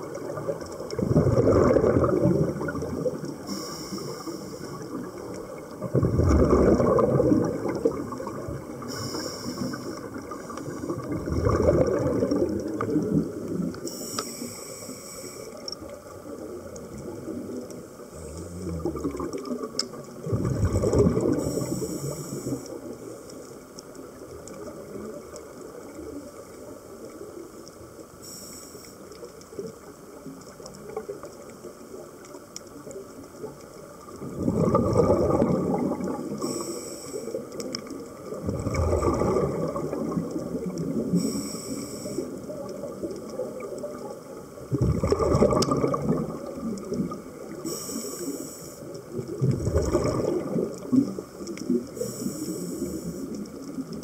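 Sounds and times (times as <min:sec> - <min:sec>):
exhaled bubbles rumbling underwater: 0:00.0 - 0:28.4, 0:29.0 - 0:54.0
regulator inhalation hiss: 0:03.5 - 0:04.9, 0:08.8 - 0:10.1, 0:13.8 - 0:15.6, 0:21.4 - 0:22.8, 0:28.2 - 0:29.1, 0:36.4 - 0:37.5, 0:41.1 - 0:42.5, 0:47.6 - 0:49.0, 0:51.9 - 0:53.3.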